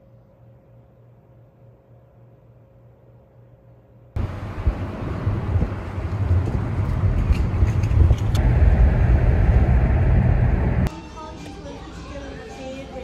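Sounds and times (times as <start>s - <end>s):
road noise: 4.2s - 10.9s
wind buffeting microphone: 4.2s - 10.9s
wind rushing past car window: 4.2s - 10.9s.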